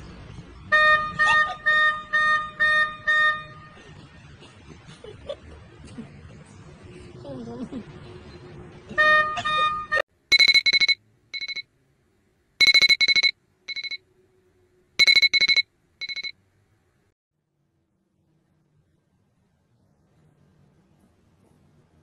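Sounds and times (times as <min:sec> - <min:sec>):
electronic alarm beeping: 0:10.3 - 0:11.6, 0:12.6 - 0:14.0, 0:15.0 - 0:16.3.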